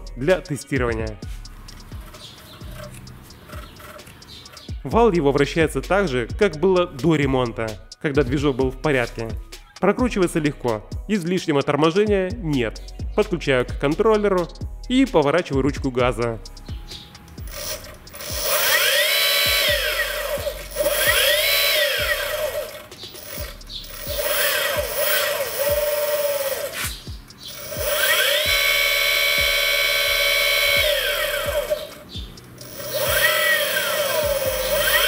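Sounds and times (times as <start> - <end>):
electric motor whine: 17.4 - 35.0.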